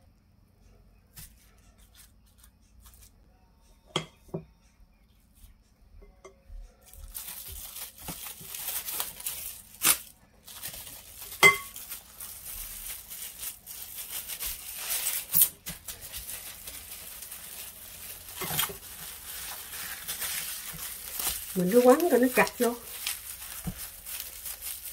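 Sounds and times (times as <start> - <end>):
plastic cling wrap crinkling: 6.8 - 24.9.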